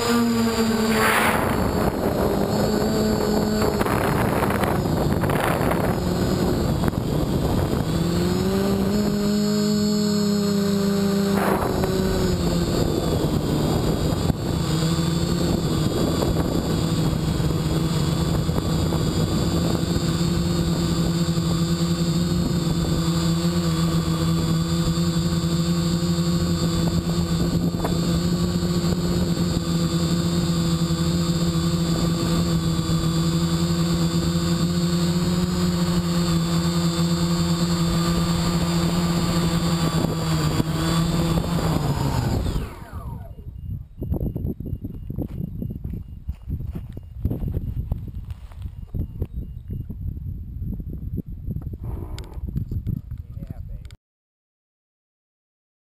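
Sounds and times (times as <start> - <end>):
quadcopter propeller drone: 0.0 - 54.0
rushing noise: 0.2 - 3.7.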